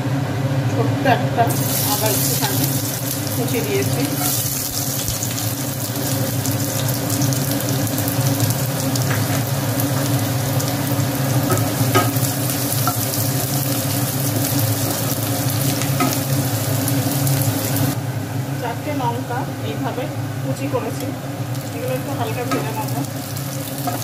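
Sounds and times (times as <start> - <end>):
garlic sizzling in hot oil: 1.5 - 19.1, 20.5 - 24.0
spatula knocking pan: 11.4 - 13.2, 22.4 - 22.8.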